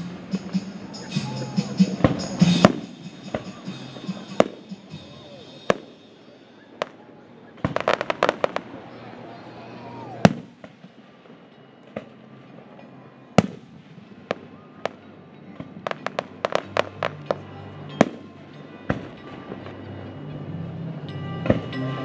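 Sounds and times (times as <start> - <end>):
fireworks bursting with sharp bangs: 0.0 - 9.0, 10.2 - 12.2, 13.4 - 19.6.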